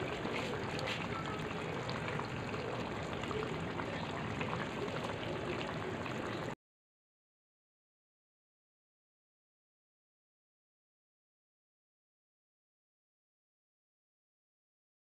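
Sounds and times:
curry bubbling and hissing: 0:00.0 - 0:06.6.

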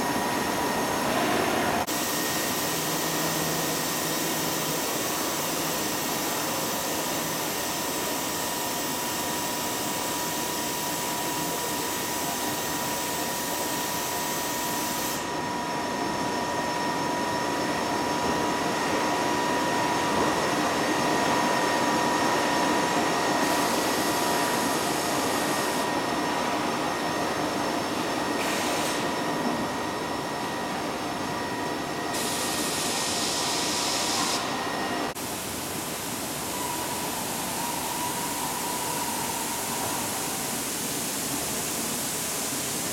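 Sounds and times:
printer fans and drives whirring: 0:00.0 - 0:42.9
hiss: 0:28.4 - 0:29.1, 0:32.1 - 0:34.4
constant high tone: 0:36.2 - 0:40.9.

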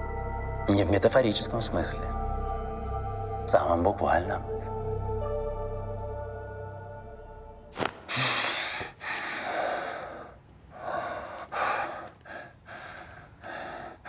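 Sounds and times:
ambient music: 0:00.0 - 0:08.2
man gasping and breathing hard: 0:08.1 - 0:14.0.

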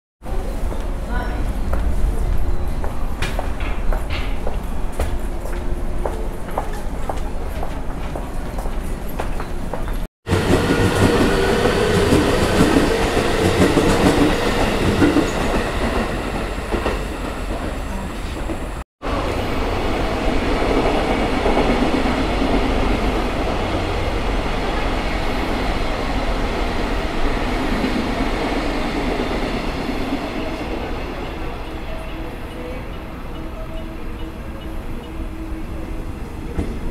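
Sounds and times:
trains running on rails: 0:00.3 - 0:36.9.

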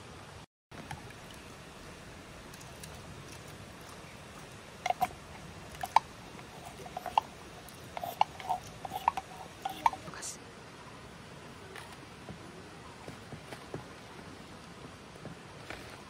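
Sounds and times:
stream water rushing: 0:00.0 - 0:16.0
spoon scraping tin: 0:04.8 - 0:10.3.

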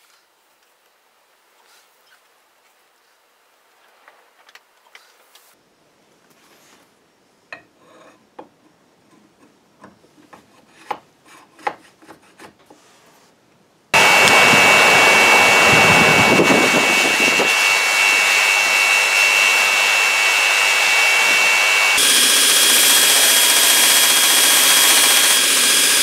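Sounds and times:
forge roaring with air blast: 0:14.0 - 0:26.0
high steady whine: 0:14.0 - 0:26.0.

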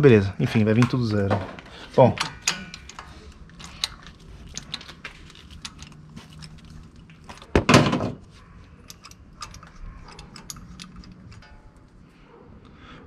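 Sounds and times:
tools clattering: 0:00.7 - 0:12.0
metal tools clicking and clinking: 0:02.0 - 0:12.1.

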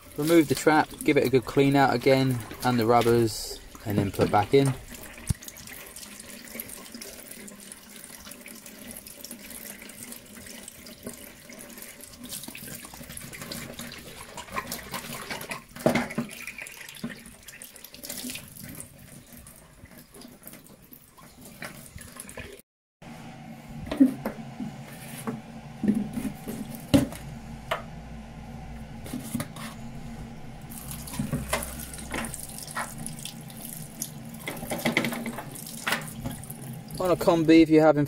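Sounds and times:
tap water running into sink: 0:00.0 - 0:22.6, 0:30.6 - 0:37.5.

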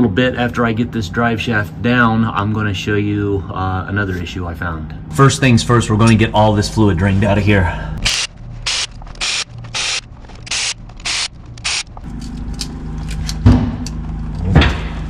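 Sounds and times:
steady low hum: 0:00.0 - 0:15.0
ratchet wrench rasping: 0:08.0 - 0:12.0.

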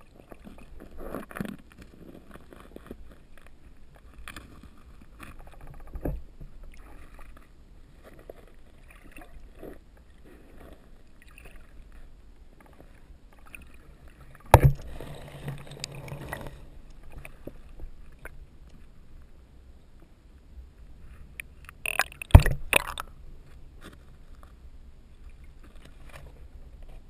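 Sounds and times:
loud thump: 0:14.5 - 0:14.8, 0:22.3 - 0:22.8.

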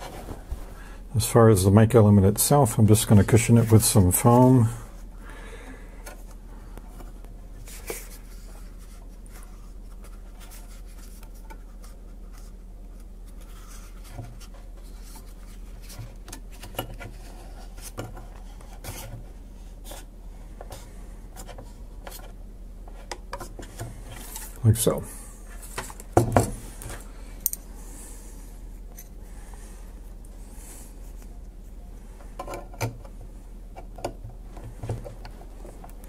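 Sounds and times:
foam rubbing and rustling: 0:00.0 - 0:00.8
steady low hum: 0:00.0 - 0:36.0.

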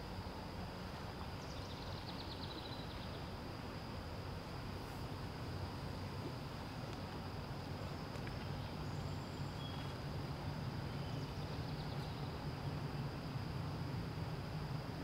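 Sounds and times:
insects chirping: 0:00.0 - 0:15.0
faint bird chirps: 0:01.4 - 0:03.3, 0:07.9 - 0:10.0, 0:10.9 - 0:12.4.

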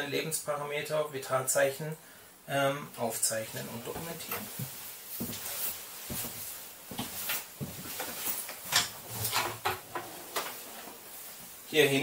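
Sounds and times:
clothing rustle: 0:03.3 - 0:12.0
footsteps on floor: 0:03.8 - 0:08.7.

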